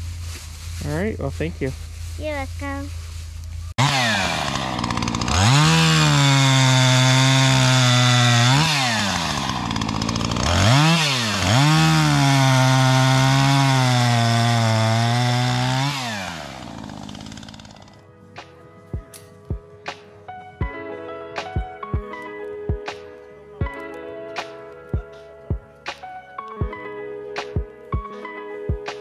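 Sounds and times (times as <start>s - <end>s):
chainsaw cutting a log: 3.8s - 18.0s.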